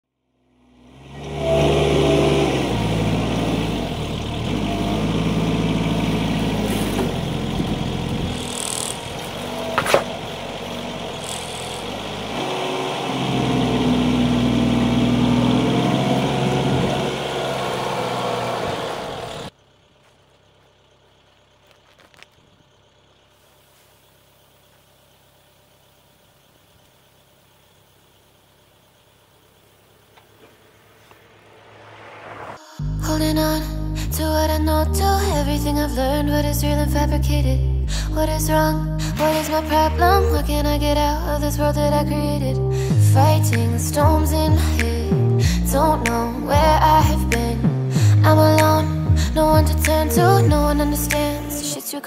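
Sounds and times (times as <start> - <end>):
tractor engine running: 0.6 - 32.4, 38.0 - 51.8.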